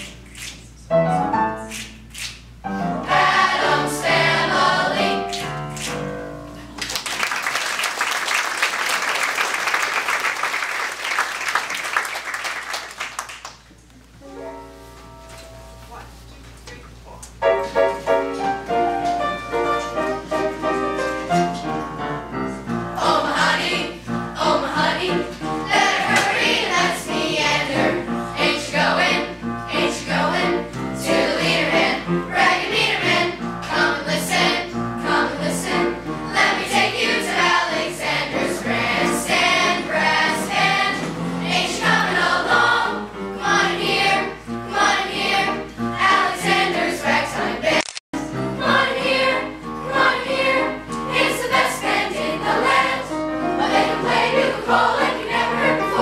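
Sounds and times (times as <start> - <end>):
choir singing: 3.0 - 5.3, 21.3 - 56.0
rhythmic musical accompaniment: 17.4 - 47.6.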